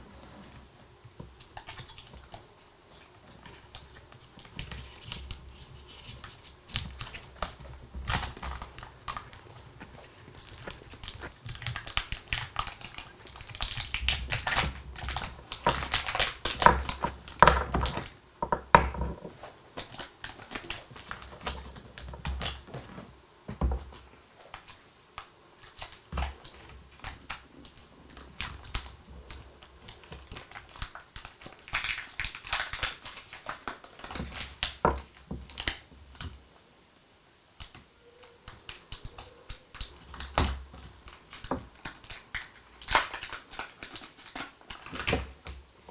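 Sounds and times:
chocolate wrappers crinkling: 3.3 - 18.2, 25.7 - 35.8, 38.6 - 45.5
small bars tapping on a table: 16.6 - 19.3.

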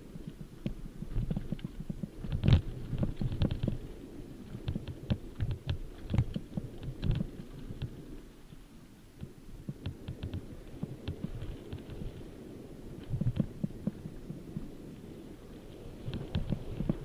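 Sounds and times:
bike tyre rumble on dirt: 0.0 - 8.4, 9.2 - 17.0.

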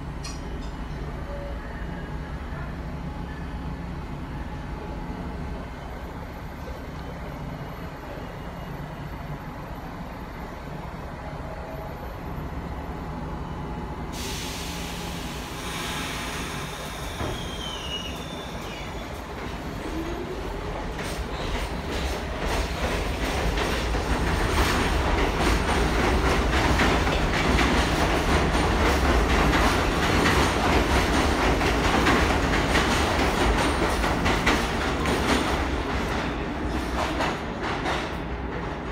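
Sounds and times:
subway train rumble and clatter: 0.0 - 38.9.

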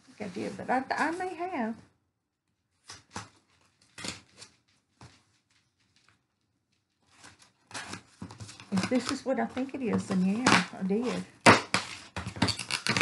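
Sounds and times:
packaging rustling: 6.8 - 10.4.

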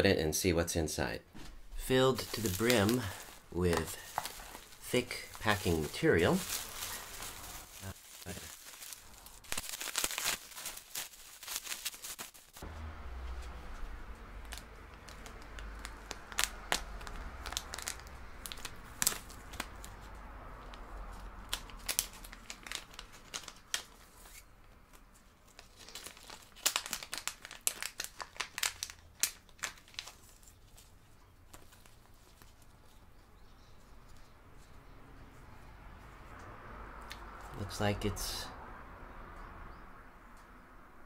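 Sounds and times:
foil bag crinkling: 2.0 - 12.6, 14.4 - 19.8, 21.5 - 24.3, 25.5 - 32.7
bubble wrap crinkling: 2.0 - 12.7, 13.4 - 33.5.

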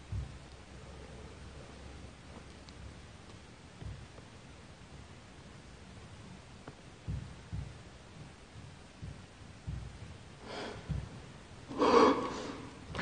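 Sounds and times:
soft low thuds: 0.0 - 11.7
person breathing out hard: 10.4 - 11.1, 11.7 - 13.0.

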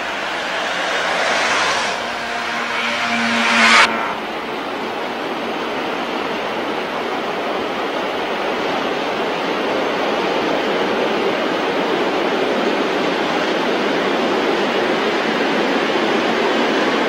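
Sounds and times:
train rolling over tracks: 0.0 - 6.5.

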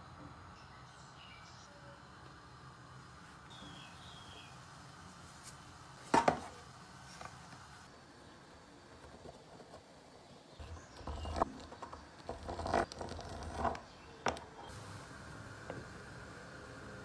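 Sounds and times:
pastry wheel scraping dough: 10.6 - 14.7.

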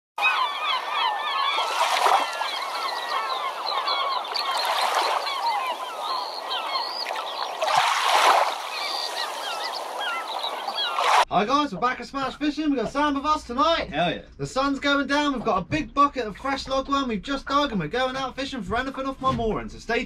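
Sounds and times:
flock of birds chattering: 0.2 - 11.2.

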